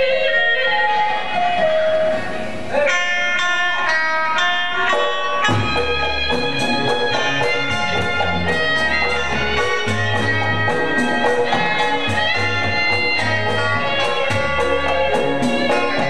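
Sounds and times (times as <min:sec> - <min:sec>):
ensemble struck melodic notes: 0:03.2 - 0:16.0
bass and drum pulse: 0:05.4 - 0:16.0.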